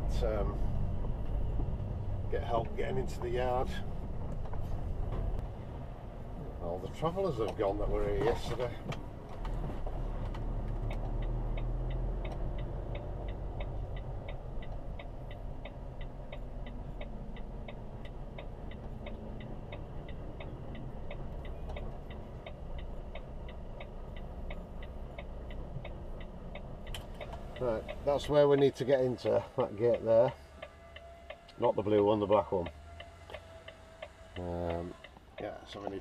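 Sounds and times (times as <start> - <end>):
diesel engine rumble: 0.0 - 36.0
indicator ticking: 10.8 - 28.7.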